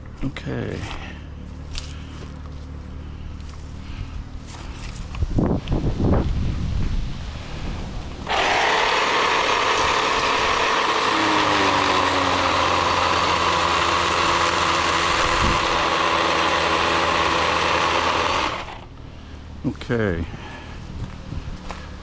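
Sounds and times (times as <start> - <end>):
electric chainsaw running: 8.2 - 19.0.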